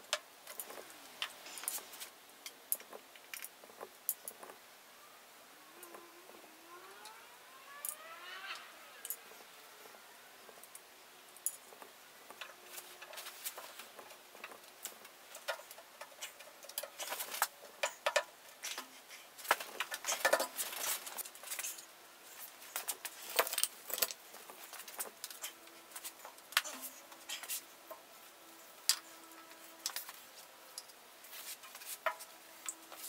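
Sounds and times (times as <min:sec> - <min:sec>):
clicks and taps of wooden parts: 0:11.7 - 0:20.6.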